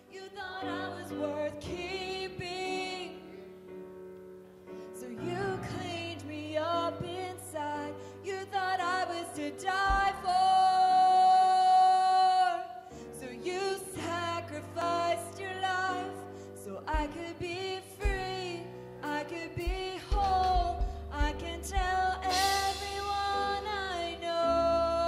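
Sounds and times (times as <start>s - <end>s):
woman singing: 0.0s - 3.5s, 4.8s - 25.0s
piano: 0.0s - 25.0s
drums: 9.9s - 10.4s, 16.9s - 17.3s, 18.0s - 18.5s, 19.6s - 24.2s.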